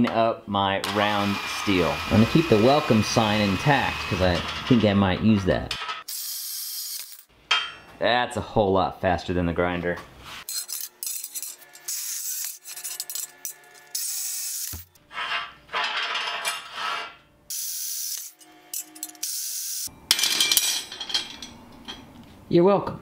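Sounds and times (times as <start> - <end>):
steel rods scraping on metal table: 3.3 - 5.0, 12.6 - 13.8, 15.0 - 17.2
rod clattering on concrete floor: 7.1 - 7.9, 15.2 - 17.1, 20.1 - 22.1.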